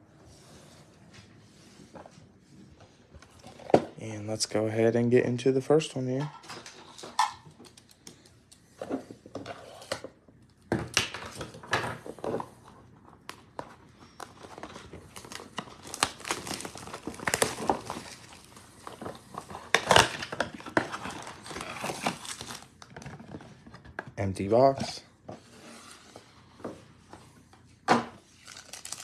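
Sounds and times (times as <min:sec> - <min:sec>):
plastic shrink wrap crinkling: 0:14.2 - 0:23.4, 0:28.3 - 0:29.0.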